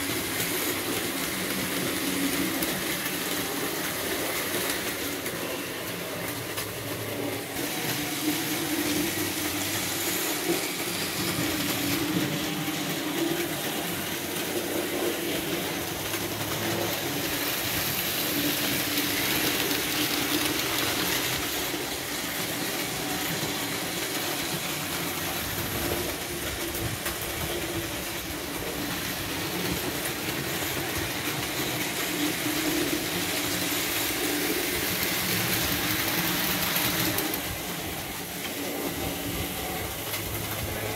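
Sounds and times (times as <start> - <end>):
model trains whirring: 0.0 - 40.9.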